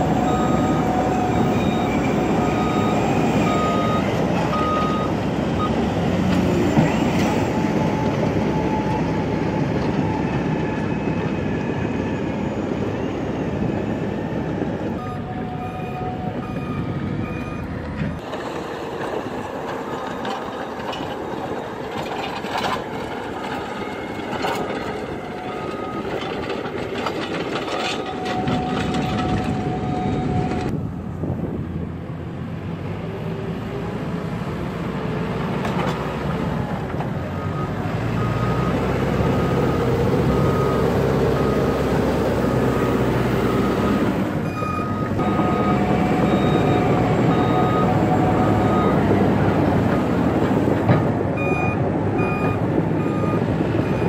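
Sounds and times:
backhoe diesel engine running: 0.0 - 54.0
reversing alarm beeps: 0.2 - 5.8, 15.0 - 18.2, 43.5 - 49.1, 51.4 - 54.0.

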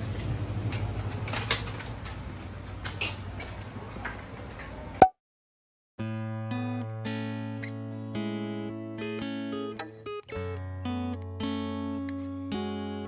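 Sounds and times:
acoustic guitar music: 6.0 - 13.0.

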